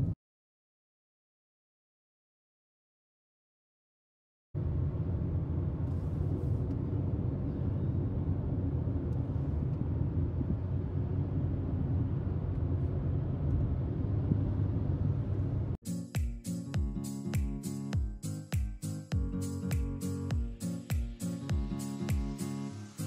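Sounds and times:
car cabin rumble at highway speed: 0:04.6 - 0:15.8.

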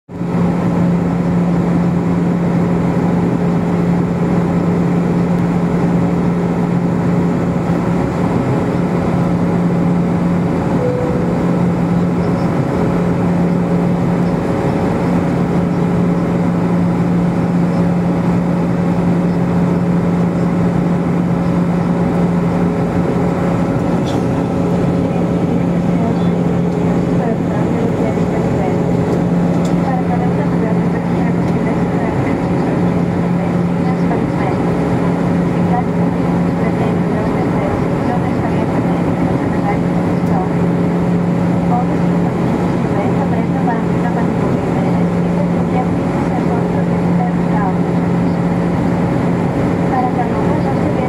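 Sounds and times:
airliner cabin engine drone: 0:00.1 - 0:51.0.

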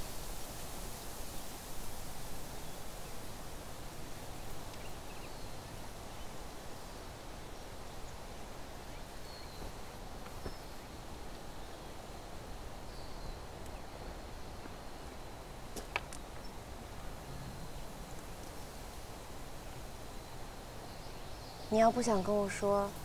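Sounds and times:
rustling hiss: 0:00.0 - 0:23.0
faint bird chirps: 0:04.2 - 0:12.2, 0:12.8 - 0:15.5, 0:20.0 - 0:23.0.

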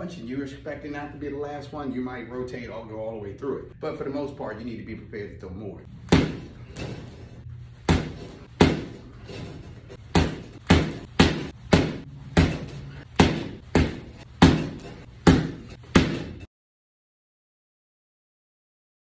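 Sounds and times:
gloves punching heavy bag: 0:06.0 - 0:16.5.

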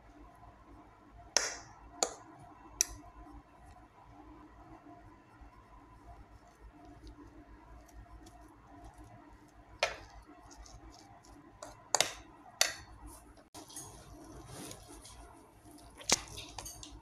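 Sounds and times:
fork mashing potatoes: 0:05.7 - 0:17.0.

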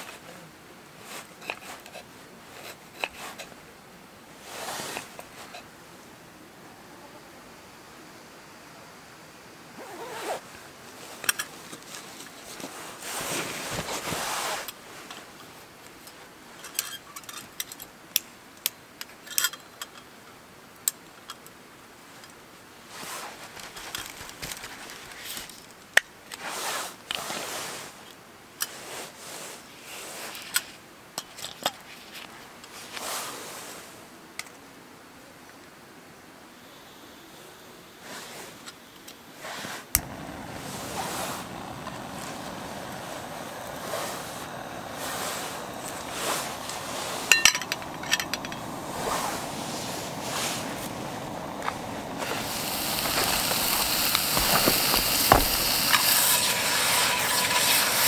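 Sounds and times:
gear scraping and rustling: 0:39.5 - 0:57.9.

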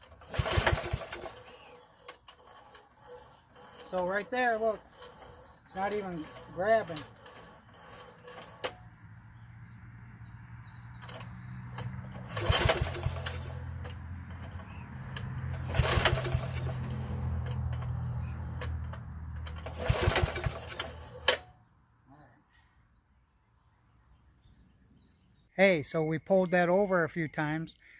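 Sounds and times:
recoil starter cord rattling: 0:00.0 - 0:08.9, 0:11.0 - 0:21.5
low motor hum: 0:00.0 - 0:21.4.

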